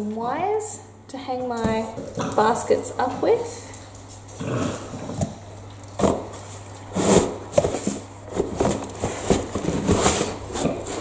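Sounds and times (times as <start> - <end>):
cardboard rustling and scraping: 6.0 - 11.0.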